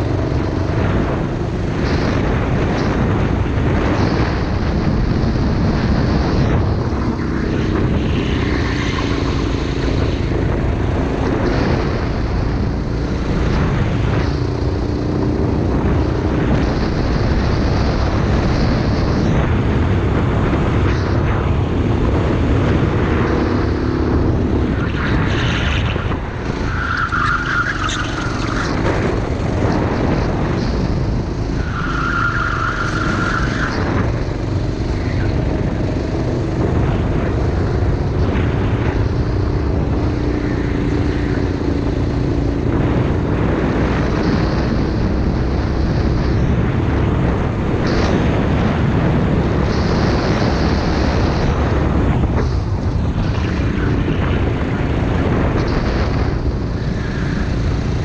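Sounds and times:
go-kart engine racing: 0.0s - 58.0s.

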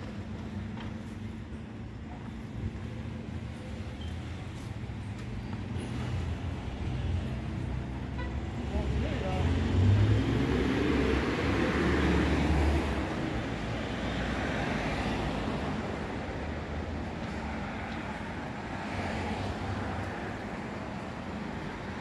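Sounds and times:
cars passing: 0.0s - 22.0s
heavy vehicle rumble: 0.0s - 22.0s.

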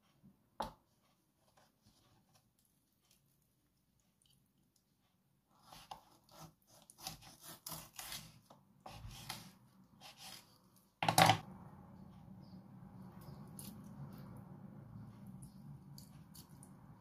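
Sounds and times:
knife cutting through chicken: 5.5s - 10.6s
faint steady hum: 8.7s - 17.0s.

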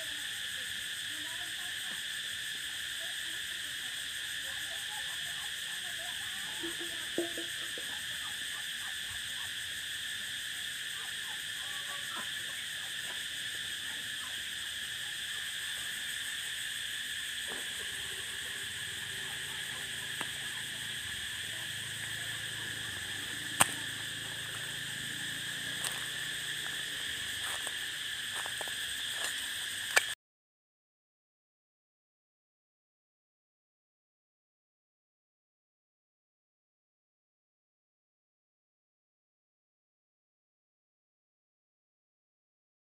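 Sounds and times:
chorus of calling animals: 0.0s - 30.0s.

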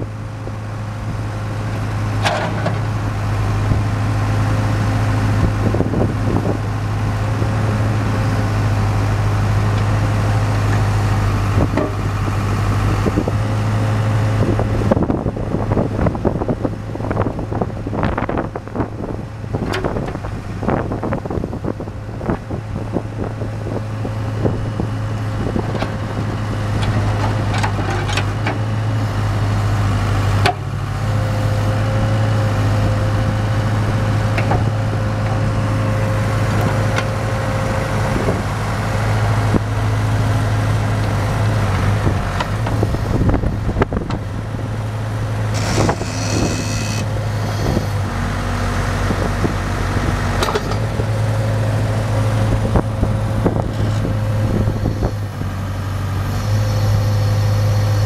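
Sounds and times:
diesel engine running: 0.0s - 58.0s
high squeal: 45.5s - 48.0s.

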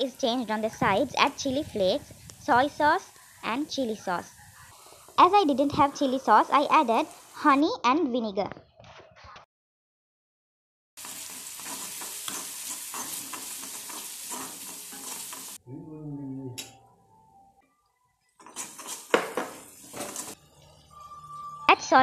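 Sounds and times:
food sizzling in oil: 0.0s - 7.5s, 11.0s - 15.6s, 18.3s - 22.0s
metal spoon scraping wok: 11.0s - 15.6s, 18.4s - 21.4s
wavering hum: 20.4s - 22.0s.

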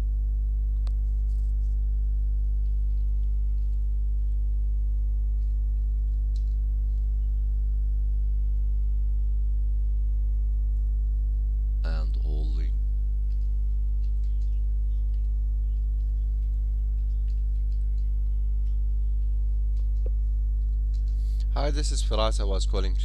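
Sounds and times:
electrical mains hum: 0.0s - 23.0s.

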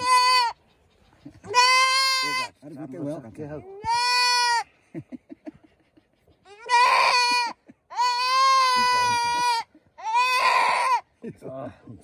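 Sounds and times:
goat bleating in distress: 0.0s - 0.6s, 1.4s - 2.7s, 3.6s - 4.7s, 6.5s - 11.2s.

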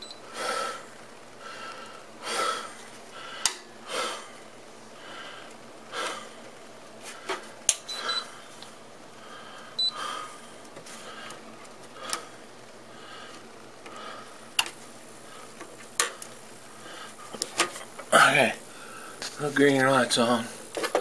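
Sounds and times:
man breathing through nose: 0.2s - 6.4s, 9.2s - 15.7s, 16.7s - 17.4s, 18.6s - 19.3s.

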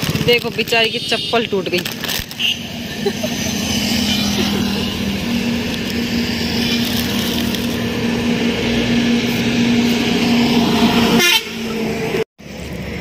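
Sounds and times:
traffic noise: 0.0s - 13.0s
vehicle engine humming: 0.0s - 13.0s.

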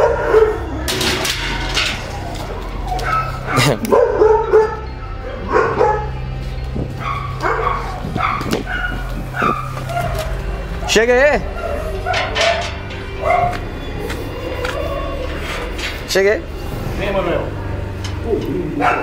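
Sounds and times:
dog barking: 0.0s - 0.8s, 2.9s - 6.3s, 7.0s - 10.4s, 11.5s - 13.6s, 18.8s - 19.0s
steady low hum: 0.0s - 19.0s.

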